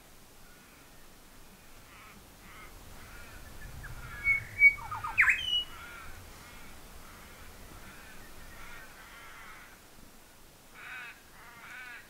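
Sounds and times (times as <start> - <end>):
crows cawing: 1.8 - 9.9, 10.7 - 12.0
crows squawking: 1.9 - 9.8, 10.8 - 12.0.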